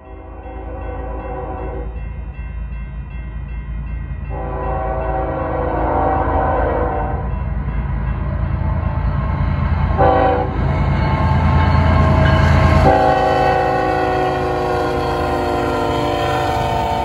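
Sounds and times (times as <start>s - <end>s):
locomotive horn blasts: 0.0s - 1.9s, 4.3s - 7.3s, 9.9s - 10.6s, 12.6s - 17.0s
diesel train rumbling: 0.0s - 17.0s.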